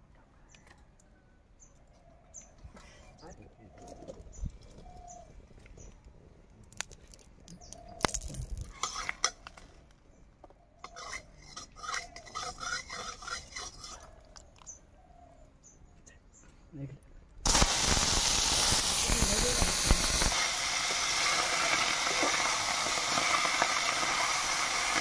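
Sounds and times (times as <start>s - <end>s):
metal spoon scraping a pan: 8.7s - 9.5s, 10.8s - 14.2s.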